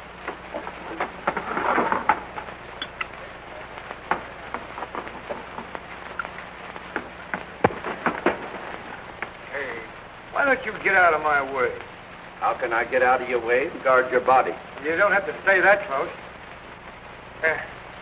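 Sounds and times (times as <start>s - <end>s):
steady hiss: 0.0s - 18.0s
sharp clicks and knocks: 0.2s - 3.2s, 3.8s - 9.4s
muffled murmur of voices: 2.8s - 6.4s.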